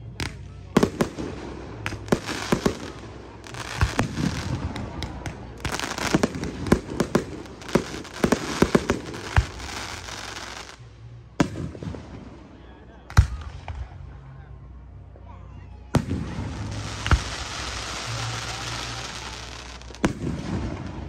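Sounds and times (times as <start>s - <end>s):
fireworks crackle: 0.2s - 11.6s, 16.0s - 21.0s.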